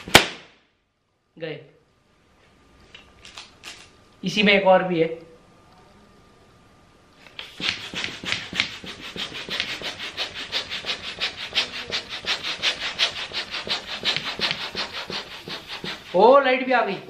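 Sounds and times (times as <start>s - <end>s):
balloon pump air strokes: 7.3s - 17.0s.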